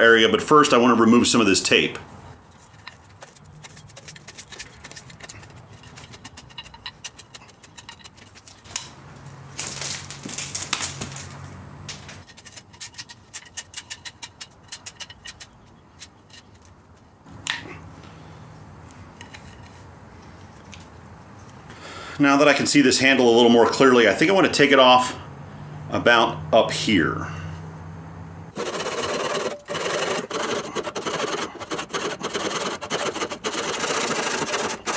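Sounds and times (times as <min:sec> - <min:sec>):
grip tape peeling and tearing: 0:28.6 - 0:34.9.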